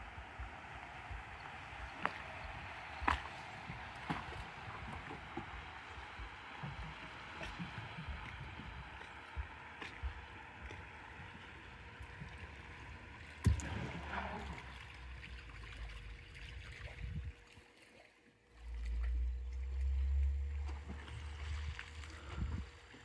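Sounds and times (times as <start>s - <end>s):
ripples lapping against dock: 0.0s - 23.0s
loud low rumble: 18.6s - 22.7s.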